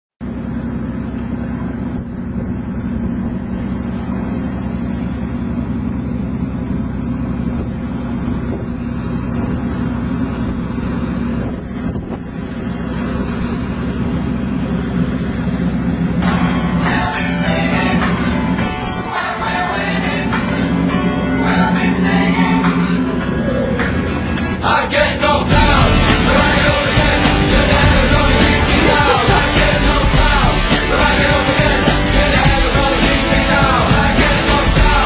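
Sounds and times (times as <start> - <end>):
wind: 0.2 - 25.5
motorboat engine running: 0.2 - 35.0.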